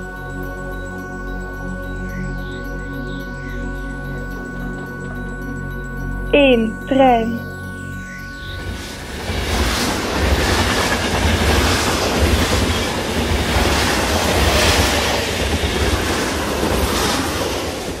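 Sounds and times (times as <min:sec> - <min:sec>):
train rumbling on rails: 0:08.6 - 0:18.0
train wheels clattering: 0:09.2 - 0:18.0.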